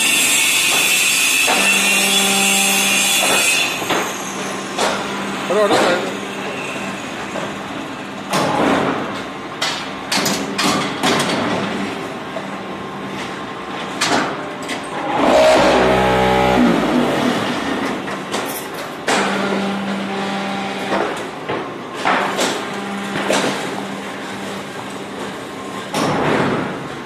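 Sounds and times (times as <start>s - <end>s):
knocks and clatter of pallets: 8.3s - 12.1s, 20.8s - 23.8s, 25.1s - 27.0s
steady motor hum: 14.5s - 21.4s, 22.0s - 26.0s
motor winding down: 15.0s - 17.8s.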